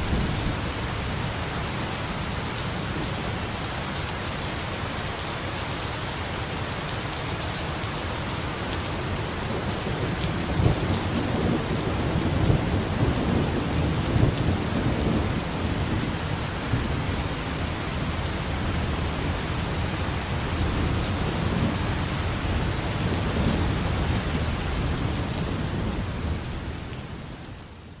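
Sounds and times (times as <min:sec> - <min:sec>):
thunder rumbling: 0:00.0 - 0:01.4
heavy rain falling: 0:00.0 - 0:28.0.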